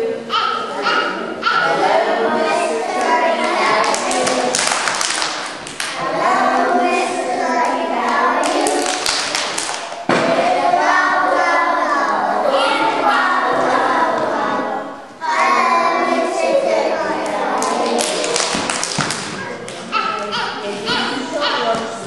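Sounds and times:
children singing in unison: 0.0s - 18.7s
hand claps: 3.4s - 6.0s, 8.4s - 10.0s, 17.6s - 19.8s.

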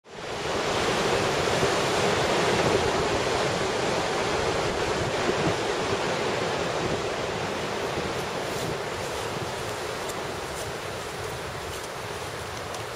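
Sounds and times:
wind: 0.0s - 12.9s
sea surf: 0.1s - 12.9s.

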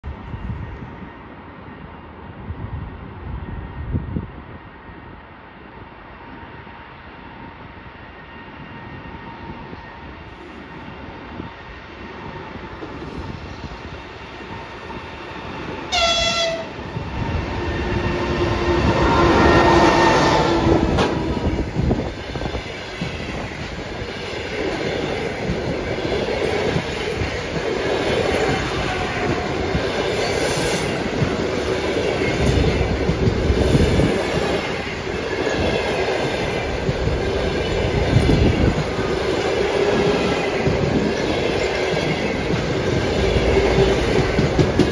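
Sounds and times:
train wheels rumbling and clattering: 8.6s - 44.9s
locomotive horn blasts: 15.9s - 16.8s.

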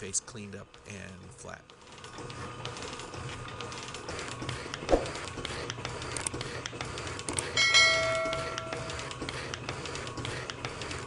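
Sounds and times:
ratcheting clicks of shaper: 1.9s - 7.6s
metal shaper machine running: 5.0s - 11.0s
ringing chime: 7.6s - 9.1s.

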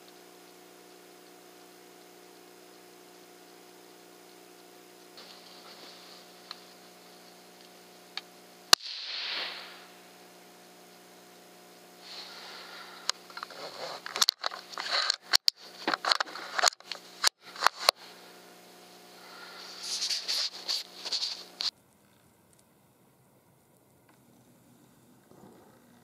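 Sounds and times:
faint steady hum: 0.0s - 26.0s
rustling: 5.2s - 7.4s, 19.4s - 22.7s
suppressed rifle shot: 8.7s - 10.0s.

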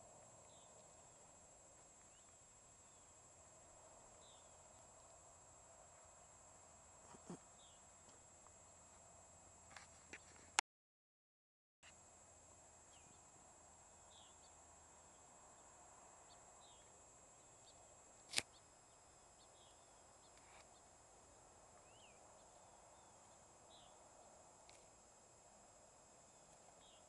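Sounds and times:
sharp click: 18.3s - 18.6s.

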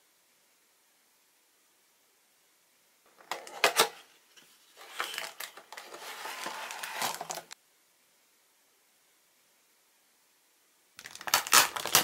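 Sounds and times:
packaging crinkling and rustling: 4.7s - 7.6s, 11.0s - 12.0s.

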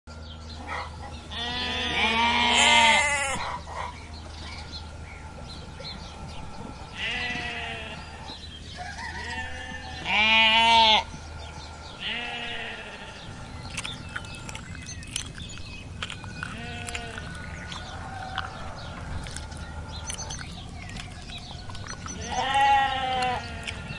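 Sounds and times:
sheep bleating: 1.3s - 3.4s, 6.9s - 8.2s, 9.2s - 11.1s, 12.0s - 13.3s, 16.5s - 17.4s, 22.1s - 23.9s.

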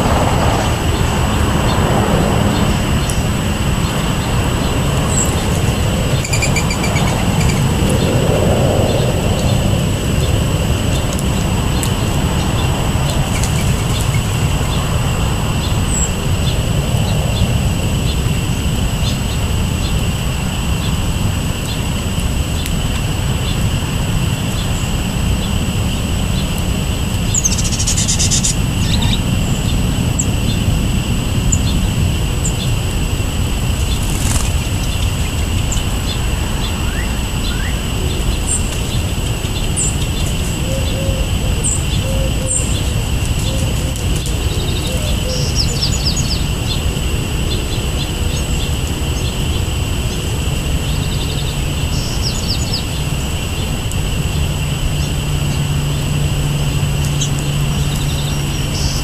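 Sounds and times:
songbirds chirping: 0.0s - 21.0s
low outdoor rumble: 0.0s - 59.0s.

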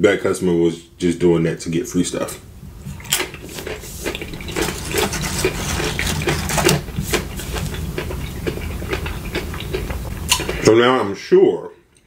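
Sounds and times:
chewing with clicks: 3.0s - 10.6s.

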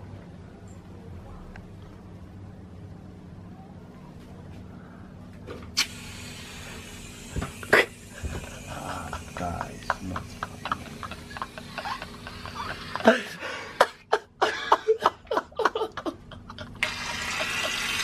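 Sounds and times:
steady hiss: 5.8s - 13.1s
stifled giggling: 7.7s - 16.8s.

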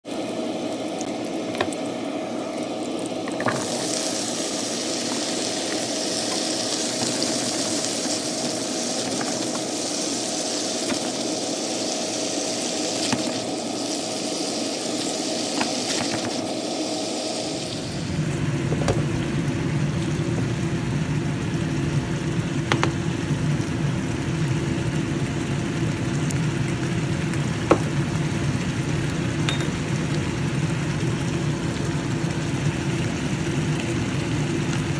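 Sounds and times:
food sizzling in a pan: 0.0s - 18.3s, 26.5s - 34.9s
steady hum: 0.0s - 34.9s.

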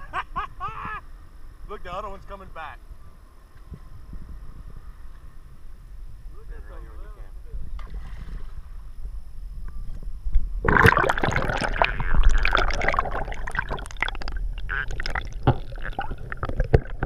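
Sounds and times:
crackly bubbling: 10.3s - 17.0s
water gurgling and rushing: 10.6s - 17.0s.

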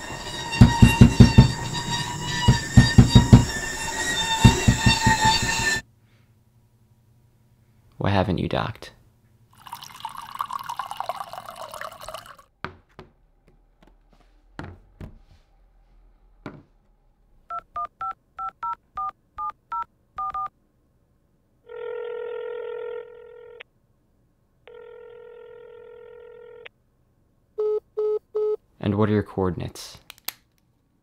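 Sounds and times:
soft knocks: 12.6s - 15.5s, 16.4s - 16.8s
touch-tone dialling beeps: 17.5s - 20.5s
phone line ringing: 21.7s - 23.6s, 24.7s - 26.7s.

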